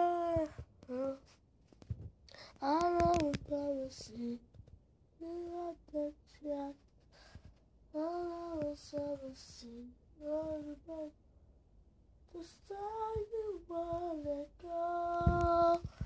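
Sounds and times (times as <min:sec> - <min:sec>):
child singing: 0:00.0 - 0:01.3, 0:02.6 - 0:04.4, 0:05.2 - 0:06.8, 0:07.9 - 0:11.2, 0:12.3 - 0:16.0.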